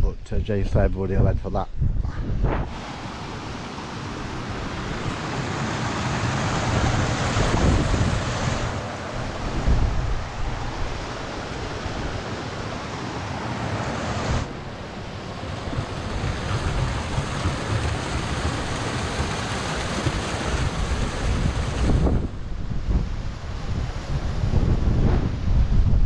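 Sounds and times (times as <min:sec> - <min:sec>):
wind buffeting microphone: 0:00.0 - 0:13.2, 0:14.3 - 0:26.0
water rushing down cascades: 0:02.7 - 0:22.3.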